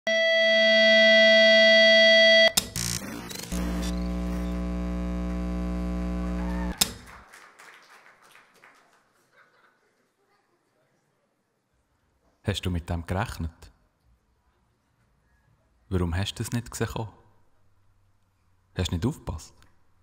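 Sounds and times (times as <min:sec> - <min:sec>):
steady electronic tone: 0:00.1 - 0:06.7
glitchy clicks: 0:02.5 - 0:06.8
low electrical buzz: 0:02.6 - 0:06.8
crackles: 0:02.8 - 0:06.8.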